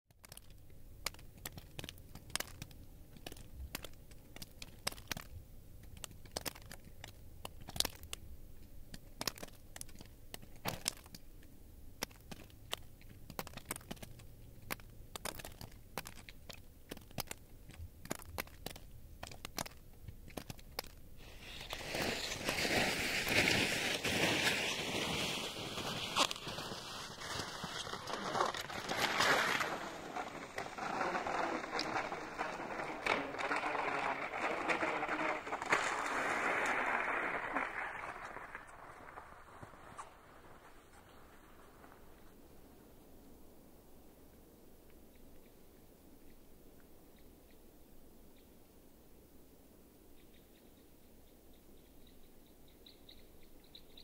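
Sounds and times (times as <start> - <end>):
faint ticks and crackles: 0.1 - 54.0
skis sliding over snow: 21.2 - 42.4.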